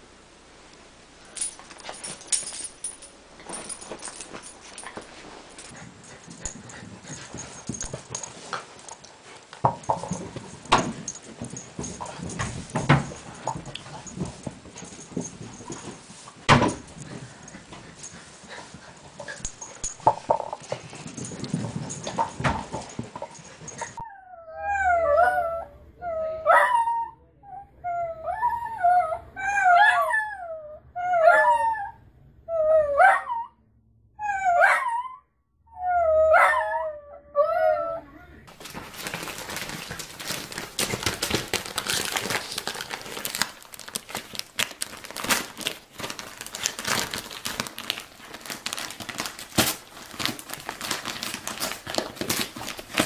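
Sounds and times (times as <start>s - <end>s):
dog whimpering: 23.8s - 33.5s, 34.2s - 38.5s.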